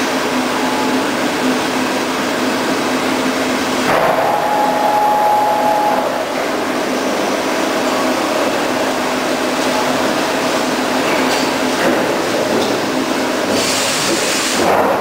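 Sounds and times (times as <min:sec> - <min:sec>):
high machine whine: 0:00.0 - 0:11.8
machine whirring with low hum: 0:00.0 - 0:15.0.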